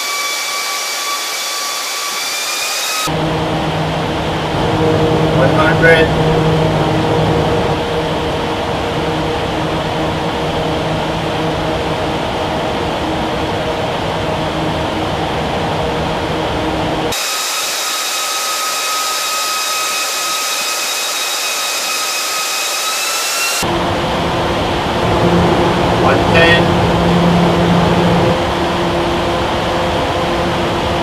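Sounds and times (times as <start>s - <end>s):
high-pitched whine: 0.0s - 31.0s
roaring wind from large fans: 3.0s - 17.4s, 23.5s - 31.0s.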